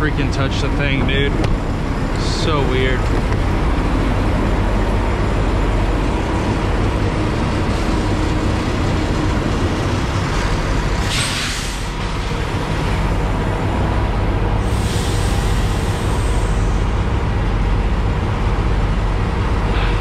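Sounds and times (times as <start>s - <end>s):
diesel truck engine idling: 0.0s - 20.0s
air hiss burst: 11.0s - 11.9s, 14.6s - 16.8s.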